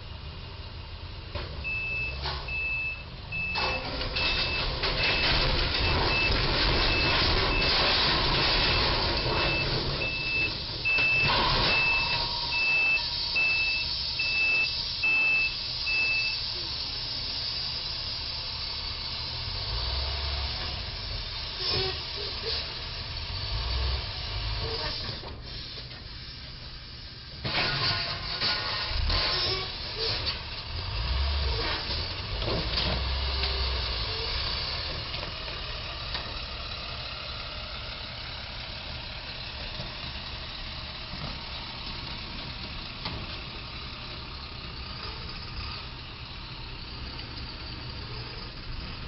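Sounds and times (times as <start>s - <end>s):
truck engine running: 0.0s - 49.0s
truck back-up alarm beeping: 1.6s - 20.8s.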